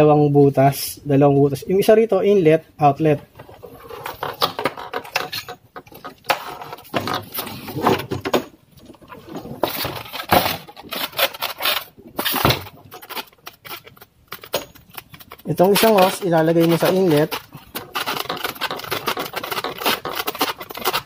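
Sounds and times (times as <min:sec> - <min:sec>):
plastic parts clicking and scraping: 0:03.3 - 0:21.0.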